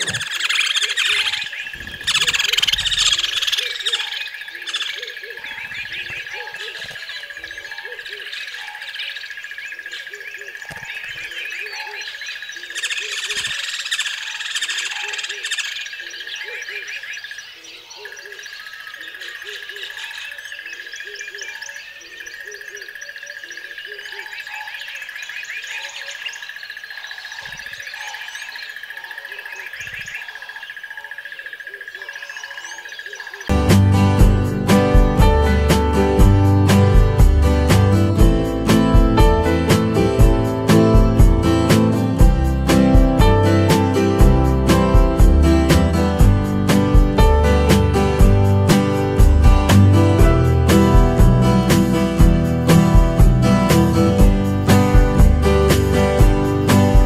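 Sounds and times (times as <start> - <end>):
low repeating calls: 0.0 - 33.5
birds chirping and calling: 0.0 - 57.0.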